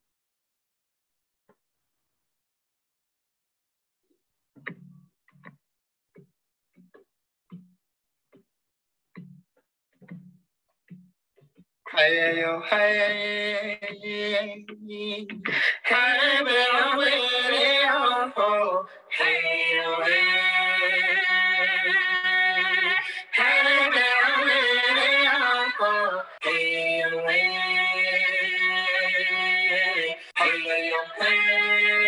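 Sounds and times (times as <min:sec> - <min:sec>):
voices singing long phrases: 0:19.1 - 0:32.0.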